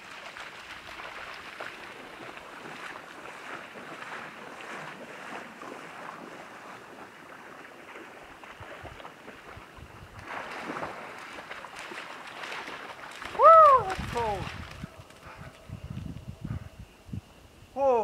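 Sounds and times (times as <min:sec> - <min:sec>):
water splashing and trickling: 0:00.0 - 0:16.2.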